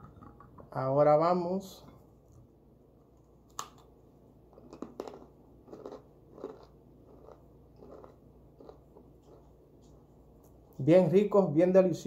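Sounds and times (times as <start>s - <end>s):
person biting crunchy snack: 4.5s - 9.6s
faint chewing crunches: 4.5s - 10.8s.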